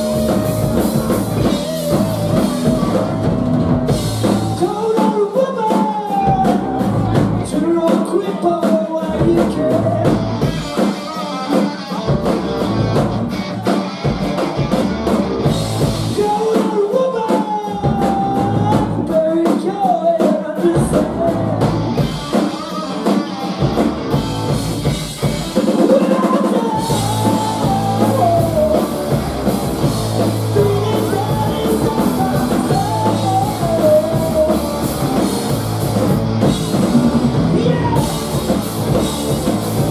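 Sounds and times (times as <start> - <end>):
drum strokes: 0.0 - 5.1, 20.9 - 39.9
rock band playing live: 0.0 - 39.9.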